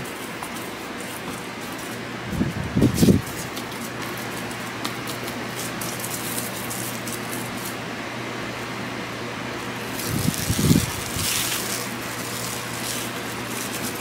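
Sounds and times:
cling film crinkling: 2.9s - 7.8s, 9.8s - 14.0s
steady hiss: 9.8s - 14.0s.

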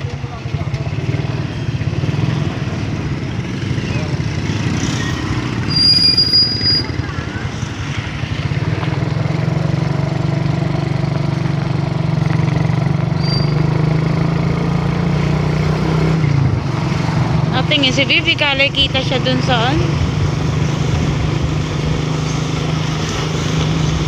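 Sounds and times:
road noise: 0.0s - 24.0s
vehicle engine droning: 0.0s - 24.0s
high-pitched squeal: 3.8s - 7.8s.

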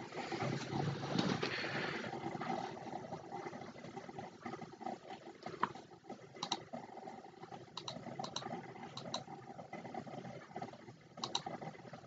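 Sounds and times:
low steady hum: 0.0s - 12.0s
computer mouse clicks: 5.4s - 6.7s, 7.6s - 9.4s, 10.6s - 11.8s.

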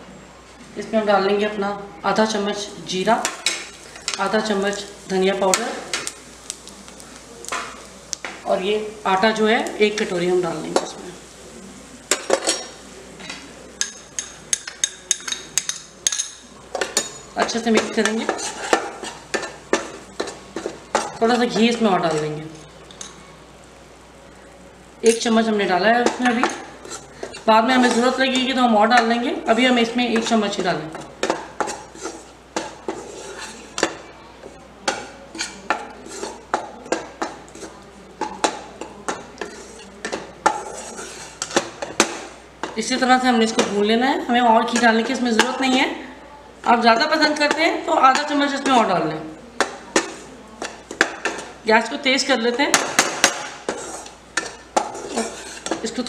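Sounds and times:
metal spatula scraping a pan: 16.9s - 22.4s, 26.2s - 30.4s, 31.2s - 33.9s, 35.3s - 37.8s, 39.4s - 42.2s, 52.9s - 56.0s.

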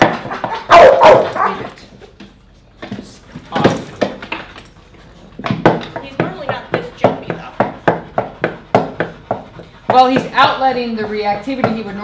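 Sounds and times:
dog barking: 0.2s - 1.7s.

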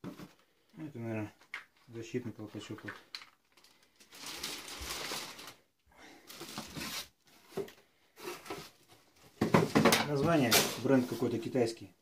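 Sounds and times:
plastic packaging rustling: 2.6s - 11.5s.

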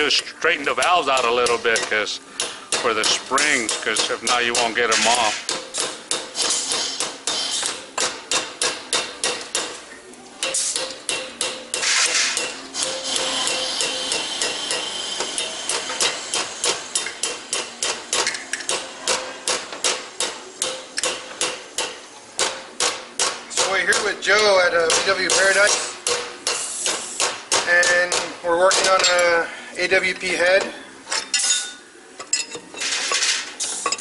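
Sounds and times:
hammer knocking on metal valves: 1.1s - 6.3s.

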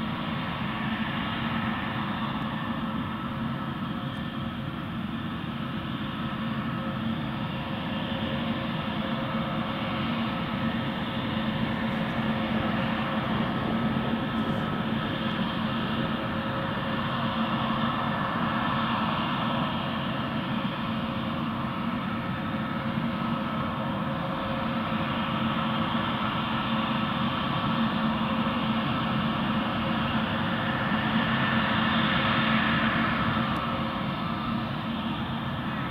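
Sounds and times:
distant jet rumble: 0.0s - 35.9s
faint steady hum: 0.0s - 35.9s.

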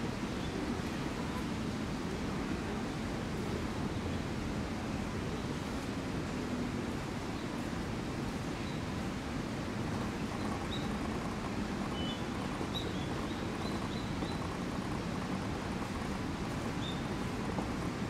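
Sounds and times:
outdoor background hiss: 0.0s - 18.0s
small birds chirping: 10.3s - 15.0s, 16.7s - 17.2s.

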